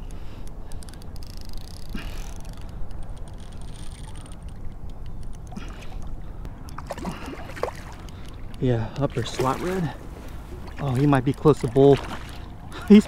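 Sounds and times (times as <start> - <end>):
fishing reel clicks: 0.0 - 5.5
water lapping around kayak: 0.0 - 13.0.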